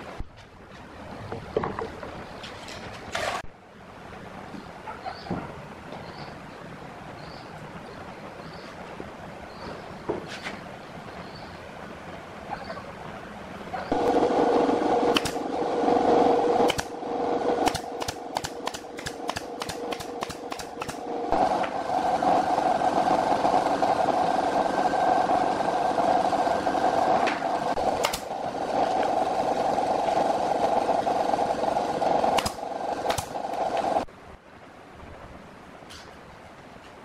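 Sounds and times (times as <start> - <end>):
steady machine hum: 13.9 - 34.1
nail gun firing into wood: 15.1 - 15.4, 16.6 - 16.9, 17.6 - 21.0, 27.8 - 28.3, 32.4 - 33.4.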